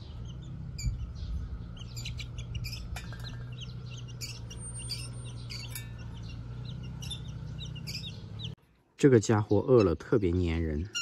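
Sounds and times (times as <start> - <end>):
chicks peeping: 0.0 - 8.6
metal feeding tray clink: 5.5 - 6.4.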